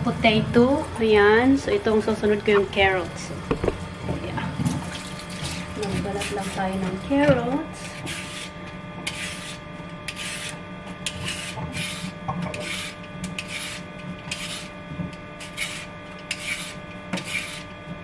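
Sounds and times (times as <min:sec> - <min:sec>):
peeler scraping carrot: 0:05.9 - 0:06.6, 0:07.8 - 0:14.8, 0:15.4 - 0:17.8.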